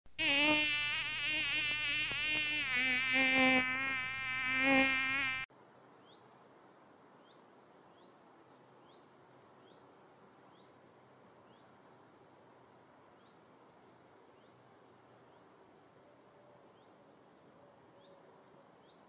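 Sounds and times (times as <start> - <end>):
flying insect buzzing: 0.1 - 5.5.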